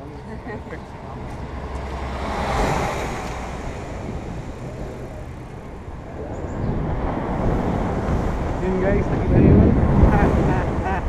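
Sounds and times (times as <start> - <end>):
truck driving past: 0.0 - 9.1
road noise: 0.0 - 11.0.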